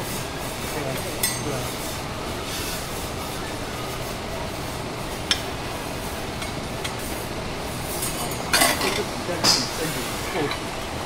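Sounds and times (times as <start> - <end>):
steady background noise: 0.0 - 11.0
metal utensils clinking: 0.9 - 1.7, 7.9 - 10.7.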